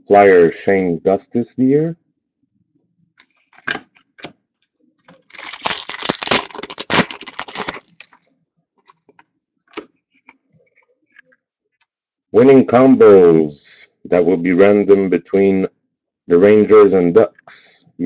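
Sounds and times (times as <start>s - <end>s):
packaging crinkling and rustling: 5.1s - 8.2s.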